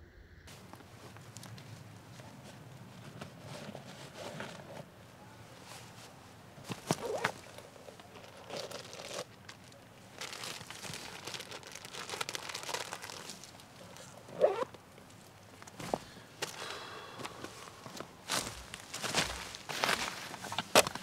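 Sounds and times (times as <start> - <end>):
gloves and fabric rustling: 0.5 - 21.0
feet crunching on dry leaves: 15.2 - 20.7.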